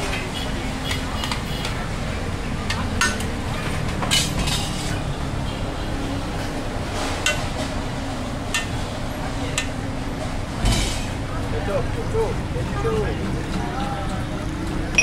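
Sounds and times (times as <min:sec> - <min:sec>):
dishes and utensils clinking: 0:02.7 - 0:05.0, 0:07.0 - 0:07.7.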